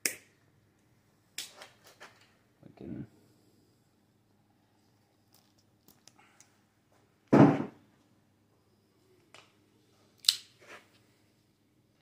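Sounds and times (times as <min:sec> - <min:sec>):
sharp snap: 0:00.0 - 0:00.3
dull knock: 0:07.4 - 0:07.7.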